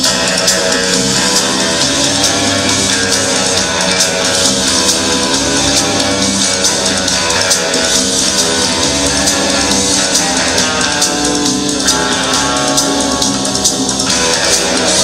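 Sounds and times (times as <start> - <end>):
rock music with guitar and drums: 0.0 - 15.0.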